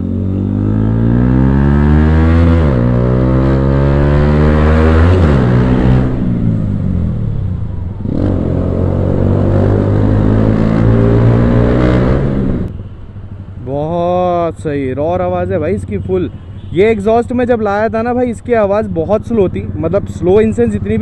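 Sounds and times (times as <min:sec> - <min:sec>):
motorcycle engine accelerating: 0:00.0 - 0:13.5.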